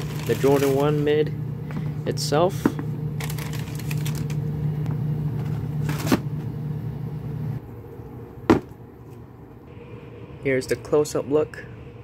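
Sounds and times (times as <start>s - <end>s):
cardboard box and paper handling: 0.0s - 1.1s, 3.2s - 4.3s
steady low hum: 0.0s - 12.0s.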